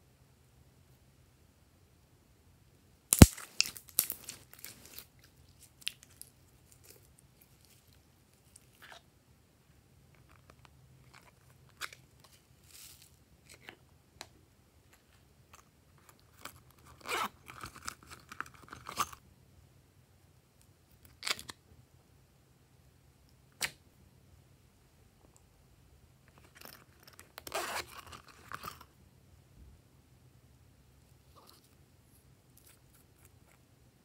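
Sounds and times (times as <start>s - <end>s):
scratchy handling noise: 26.3s - 28.9s.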